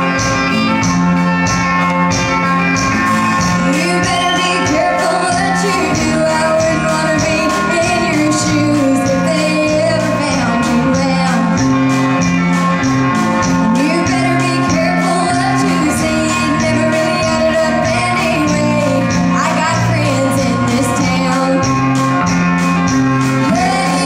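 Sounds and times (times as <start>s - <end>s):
electric guitar: 0.0s - 24.0s
steady drum beat: 0.0s - 24.0s
woman singing into microphone: 3.6s - 11.8s, 13.8s - 21.9s, 23.4s - 24.0s.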